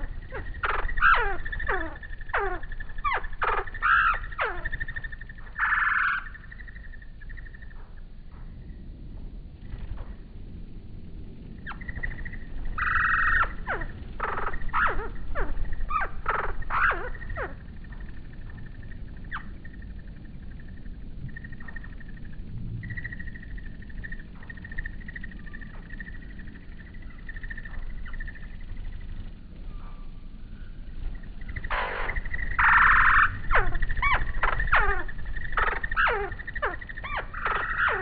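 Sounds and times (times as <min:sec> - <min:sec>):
high-pitched fluttering chirring: 0:00.0 - 0:07.8, 0:11.6 - 0:38.0
loud falling animal cries: 0:31.6 - 0:38.0.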